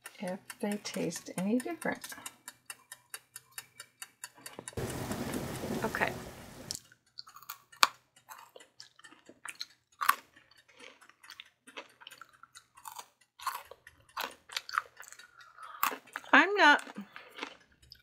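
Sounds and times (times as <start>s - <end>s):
person chewing crunchy fries: 6.7s - 18.0s.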